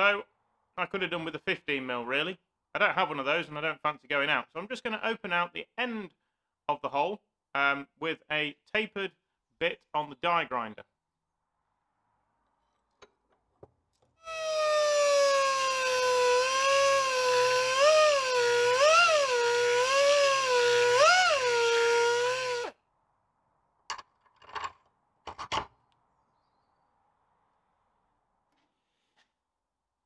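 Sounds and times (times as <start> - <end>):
die grinder high whine: 14.2 - 22.8.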